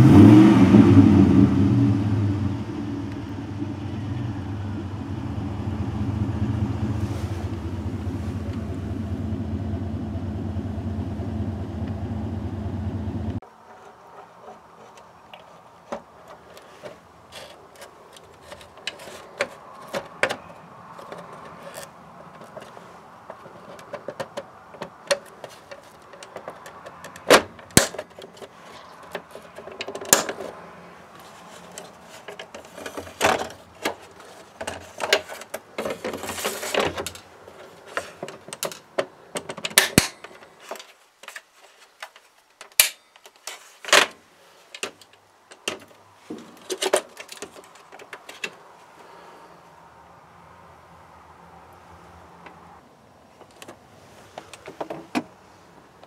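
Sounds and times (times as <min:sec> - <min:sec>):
scraping rustle: 0:06.4 - 0:09.0, 0:13.5 - 0:39.0, 0:40.2 - 0:49.4.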